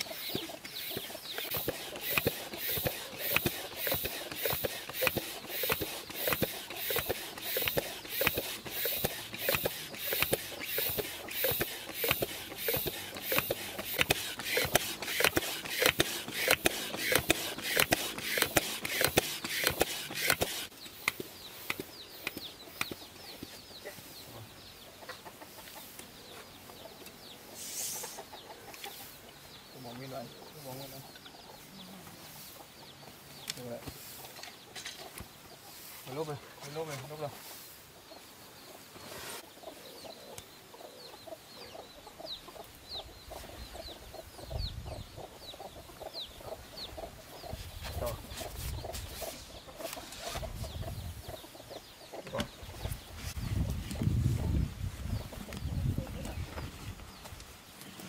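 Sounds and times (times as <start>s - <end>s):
floor pump strokes: 0.0s - 20.7s
chickens clucking: 0.0s - 58.0s.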